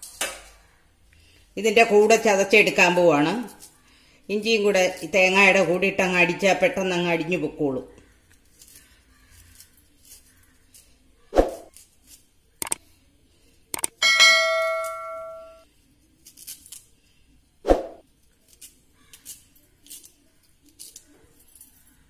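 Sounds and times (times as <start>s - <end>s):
knife cutting ginger: 8.3s - 12.8s.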